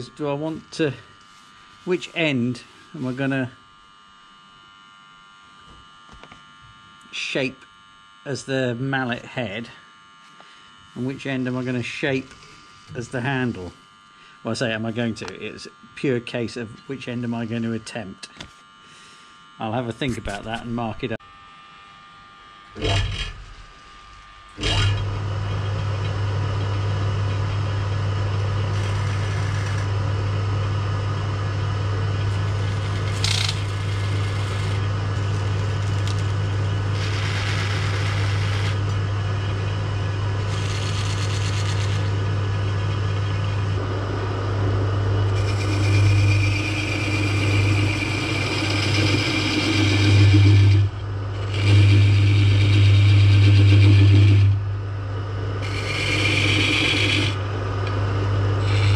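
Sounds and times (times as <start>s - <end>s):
lathe motor humming: 9.9s - 15.8s, 20.2s - 58.9s
turning tool cutting wood: 22.7s - 23.9s, 24.5s - 25.1s, 28.6s - 30.0s, 32.2s - 39.0s, 40.4s - 42.2s, 45.3s - 54.6s, 55.6s - 57.4s, 58.6s - 58.9s
scraping on spinning wood: 28.7s - 29.9s, 32.2s - 38.9s, 40.4s - 42.2s, 45.3s - 54.6s, 55.6s - 57.4s, 58.6s - 58.9s.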